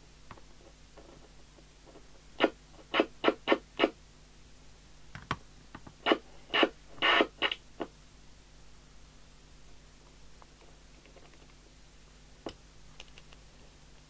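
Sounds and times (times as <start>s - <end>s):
radio noise bursts: 2.4s - 4.0s, 6.0s - 7.9s.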